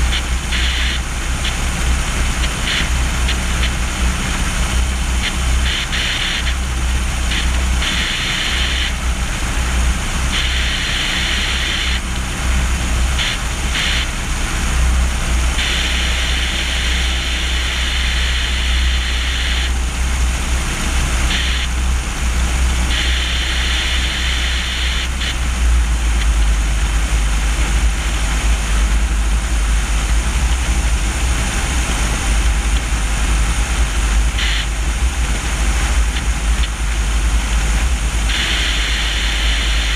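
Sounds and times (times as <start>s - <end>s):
airplane engine and propeller drone: 0.0s - 39.9s
high hiss: 22.7s - 25.5s, 38.2s - 39.9s.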